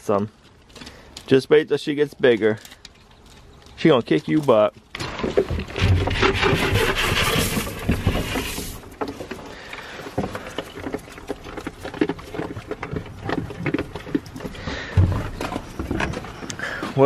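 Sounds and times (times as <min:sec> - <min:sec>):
hay rustling against wooden feeder: 0:06.0 - 0:08.9.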